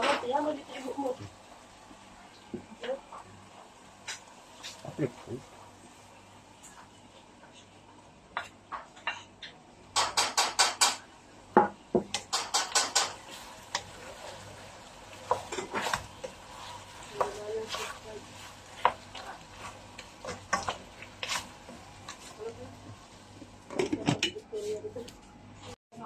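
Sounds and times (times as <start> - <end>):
spoon knocking against pot: 10.0 - 11.0, 11.6 - 13.2
wooden spoon scraping a plate: 15.2 - 22.5.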